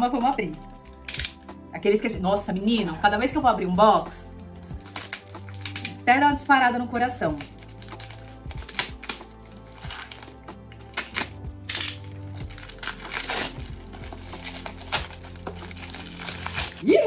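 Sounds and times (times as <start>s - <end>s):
soft background music: 0.0s - 17.0s
packaging crinkling and rustling: 4.6s - 6.0s, 7.3s - 16.9s.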